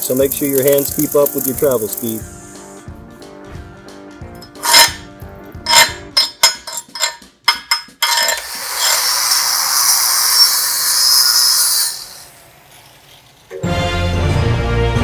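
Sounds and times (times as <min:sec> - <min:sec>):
angle grinder wire wheel scrubbing: 0:04.4 - 0:05.0, 0:05.6 - 0:13.6
hammer striking metal: 0:05.7 - 0:09.0.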